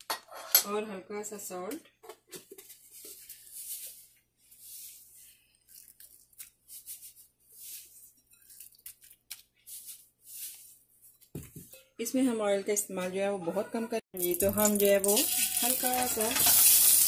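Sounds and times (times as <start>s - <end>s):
salt grains rattling: 14.2s - 17.0s.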